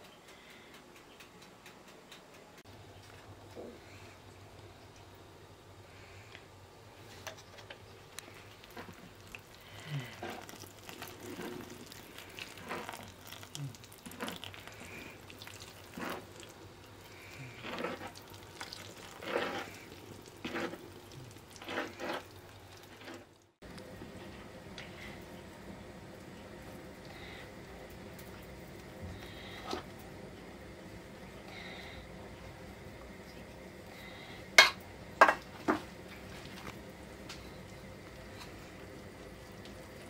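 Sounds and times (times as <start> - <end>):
food stirring strokes: 8.0 - 23.4.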